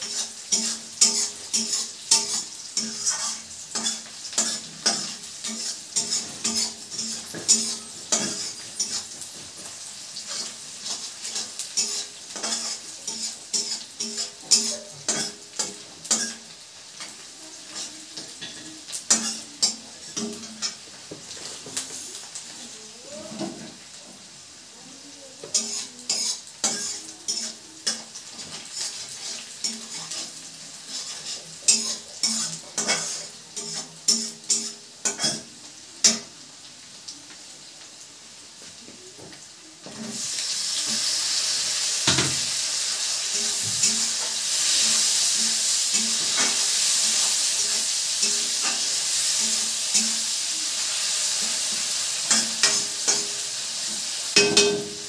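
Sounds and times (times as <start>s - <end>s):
tomatoes sizzling in hot oil: 0.0s - 55.0s
metal spatula clinking on wok: 54.4s - 55.0s.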